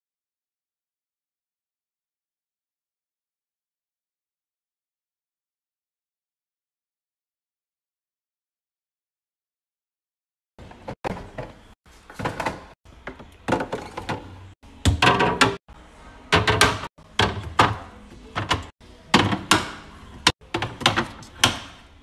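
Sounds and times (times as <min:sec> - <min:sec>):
food containers clacking on shelves: 0:10.6 - 0:15.6, 0:16.3 - 0:21.7.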